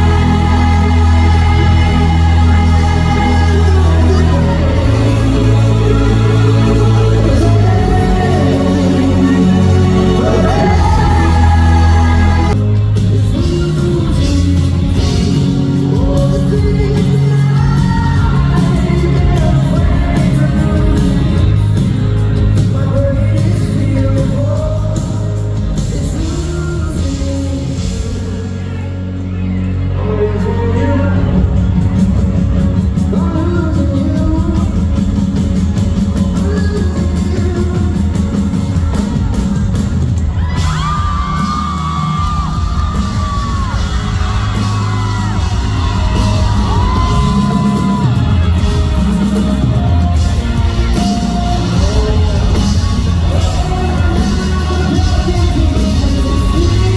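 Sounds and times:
pop-rock band playing live: 0.0 - 56.9.

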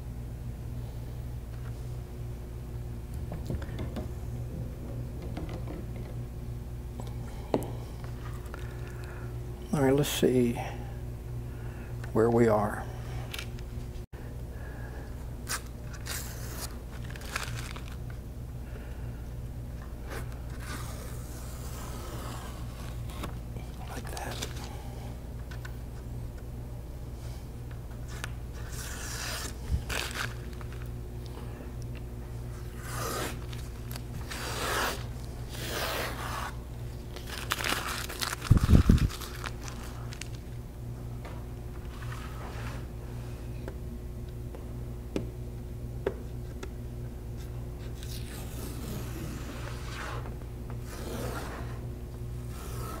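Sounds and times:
paper rubbing against board: 20.5 - 23.3, 32.7 - 36.6, 47.9 - 51.8, 52.5 - 53.0
tape peeling off board: 32.8 - 36.5.

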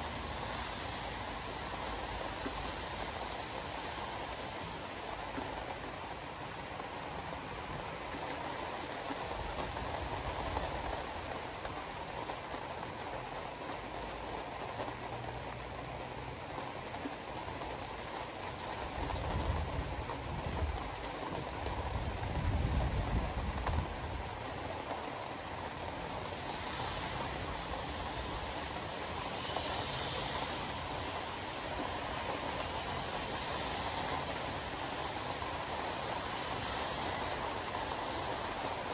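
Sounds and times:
wet tyre hiss: 26.3 - 38.8.

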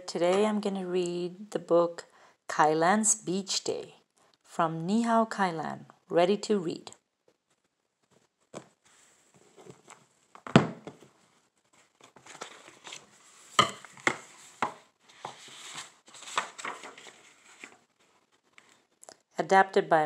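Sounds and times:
paper pages rustling: 7.3 - 19.0.

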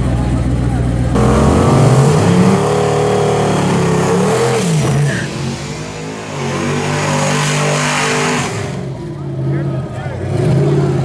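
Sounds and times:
car engine revving hard: 1.2 - 9.2.

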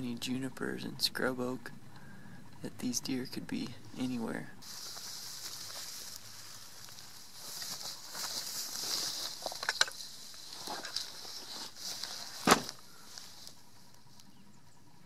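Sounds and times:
faint steady hiss: 0.0 - 15.0
handling rustle: 4.0 - 14.4.

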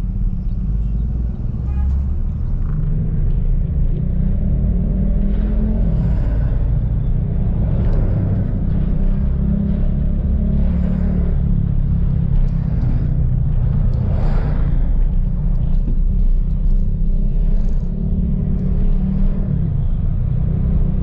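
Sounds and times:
car driving in traffic: 0.0 - 21.0.

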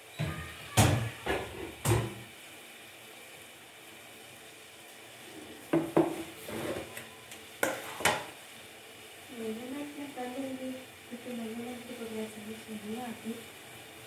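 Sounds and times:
faint steady hiss: 0.0 - 14.0
kitchen utensils knocking and clinking: 7.6 - 8.3.

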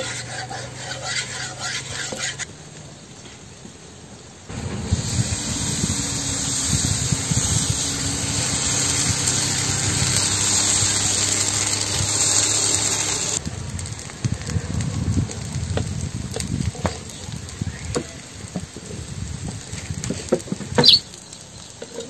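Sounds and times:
batter sizzling on hot griddle: 0.0 - 2.5, 4.5 - 22.0
crackles: 5.2 - 22.0.

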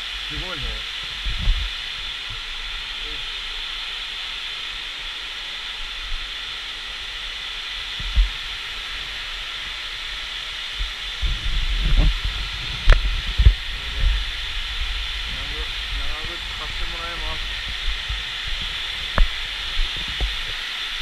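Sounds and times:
hiss of falling water: 0.0 - 21.0
low thuds: 10.8 - 20.4.

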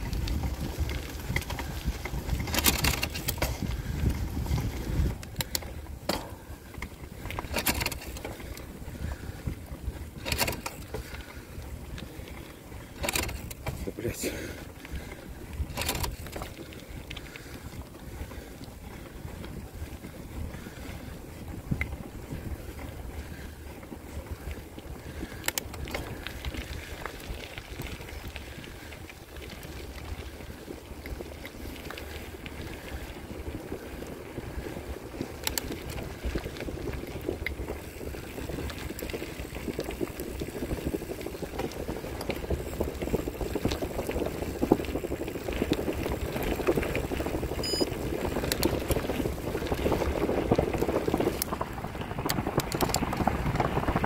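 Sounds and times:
wind buffeting microphone: 0.0 - 54.0
tyres rolling on wet road: 22.6 - 54.0.

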